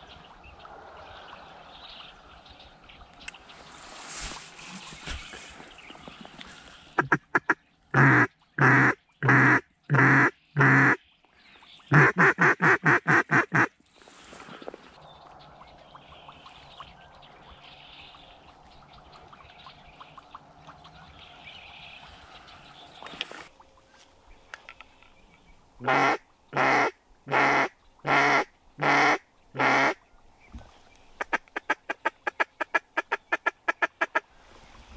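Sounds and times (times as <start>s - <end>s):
duck call quacks: 7.0s - 11.0s, 11.9s - 13.7s, 25.8s - 30.0s
duck call ticks: 31.2s - 34.2s.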